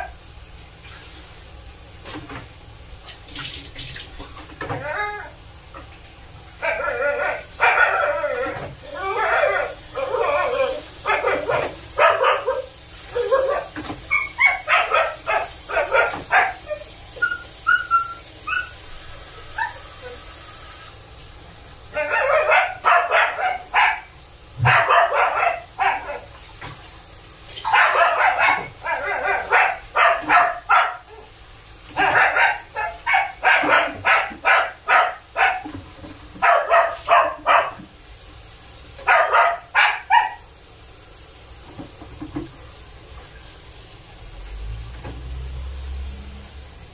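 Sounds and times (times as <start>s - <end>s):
dog barking: 6.6s - 20.2s, 21.9s - 26.3s, 27.6s - 31.3s, 31.9s - 35.8s, 36.4s - 37.8s, 39.0s - 40.5s.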